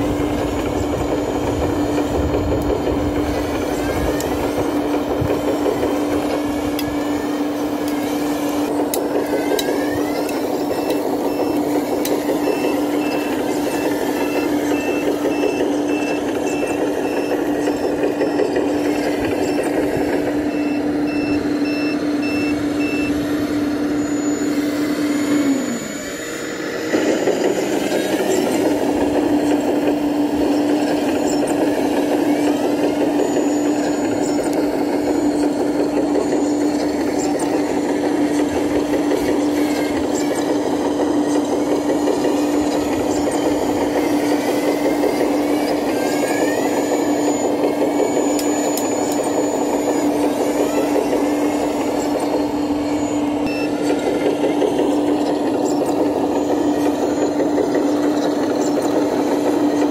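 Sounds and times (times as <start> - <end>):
track clatter: 0.0 - 24.6, 25.4 - 59.9
model bulldozer mechanical hum: 0.0 - 59.9
reversing alarm beeps: 5.7 - 59.9.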